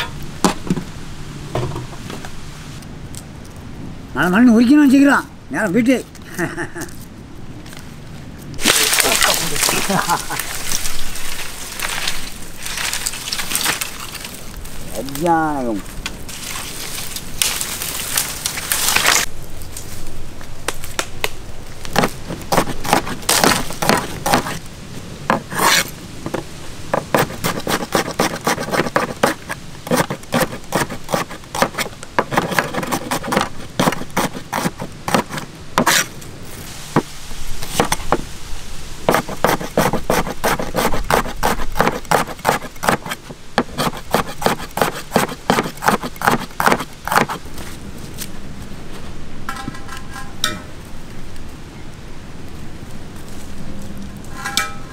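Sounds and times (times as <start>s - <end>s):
leafy branches rustling: 5.8s - 45.5s, 46.1s - 54.9s
cleaver chopping on wooden board: 22.0s - 24.6s, 25.3s - 36.1s, 39.1s - 47.4s.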